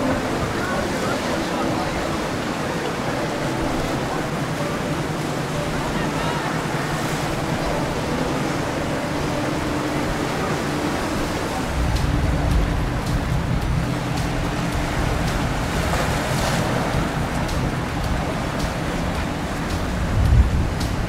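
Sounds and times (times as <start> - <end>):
motorboat engine running: 0.0 - 21.0
water rushing: 0.0 - 21.0
wind: 0.0 - 21.0.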